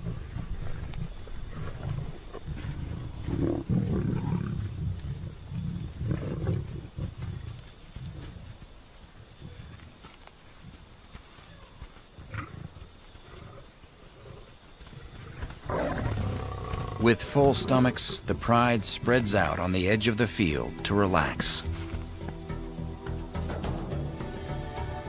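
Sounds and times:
lions growling: 0.0s - 8.3s, 12.2s - 19.6s
high-pitched insect trill: 0.0s - 25.0s.

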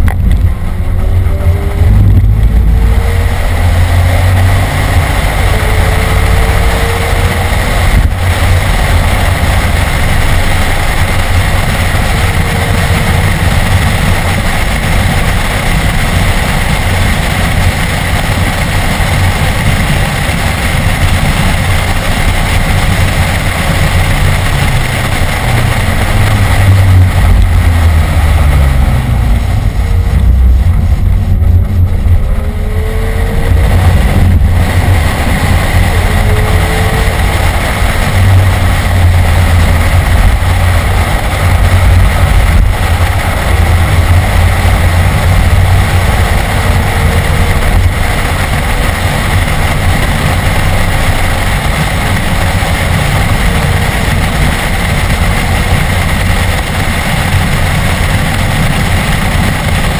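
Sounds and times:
car engine revving hard: 0.0s - 59.9s
road and wind noise: 0.0s - 59.9s.

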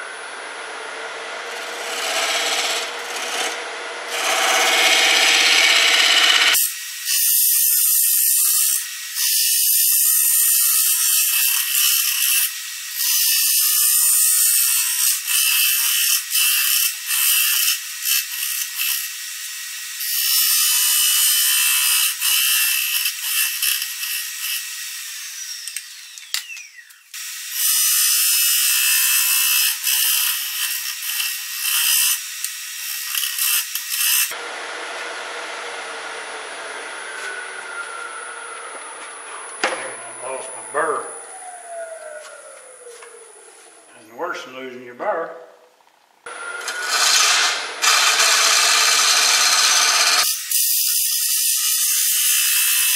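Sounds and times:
lathe whine: 0.0s - 6.6s, 34.3s - 43.9s, 46.3s - 50.3s
scraper cutting wood on lathe: 1.6s - 6.6s, 46.6s - 50.6s.

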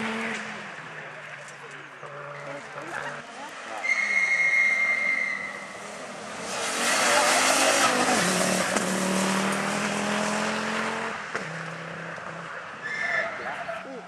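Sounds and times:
rally car engine pulling hard: 5.4s - 13.8s.

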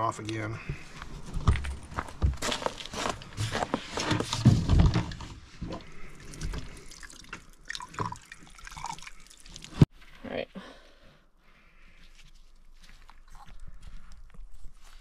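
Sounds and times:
water splashing and dripping: 4.9s - 9.9s
water pouring from jug spigot: 5.8s - 9.9s.

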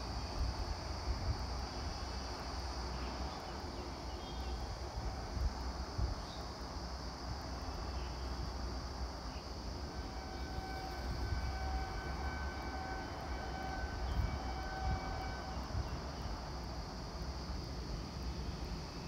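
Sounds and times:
high insect buzz: 0.0s - 19.0s
distant train horn blasts: 9.8s - 16.6s.

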